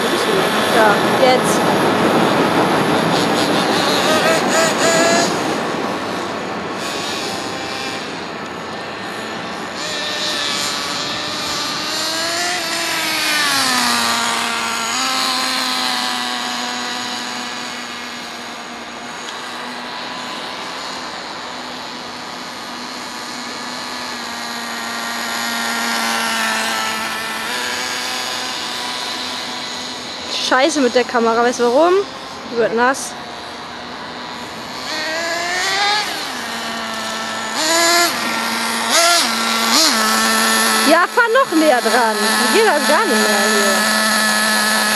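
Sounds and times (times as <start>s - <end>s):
rc car motor revving: 0.0s - 44.9s.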